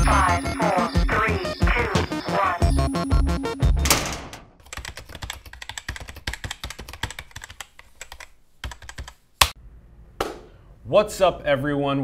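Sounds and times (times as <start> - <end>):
laptop keyboard typing: 4.6 - 9.2.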